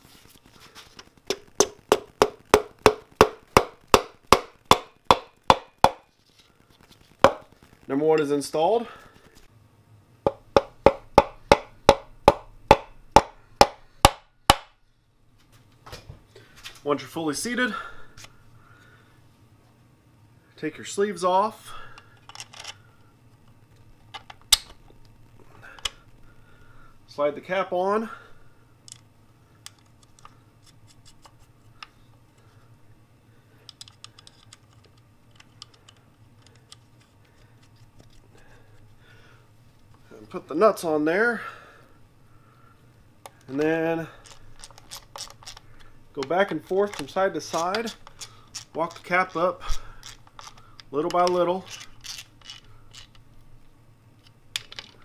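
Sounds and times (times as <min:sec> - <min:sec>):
steady low hum: 0:00.0 - 0:55.0
mallet knocking on piston: 0:10.3 - 0:14.7
small metal parts clicking: 0:33.7 - 0:36.8, 0:44.2 - 0:45.6, 0:50.0 - 0:53.2.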